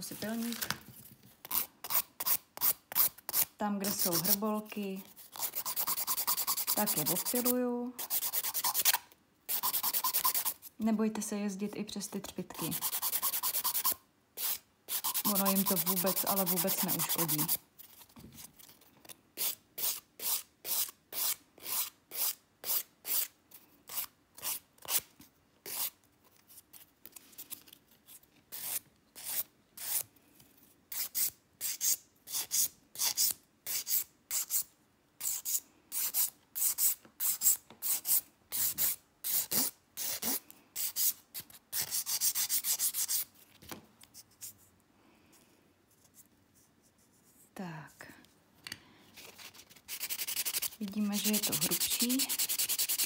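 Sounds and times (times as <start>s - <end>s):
nail file filing a nail: 1.5s - 4.4s, 5.0s - 10.7s, 12.6s - 17.6s, 19.4s - 25.0s, 25.7s - 26.0s, 28.1s - 30.1s, 30.9s - 43.3s, 49.2s - 53.0s.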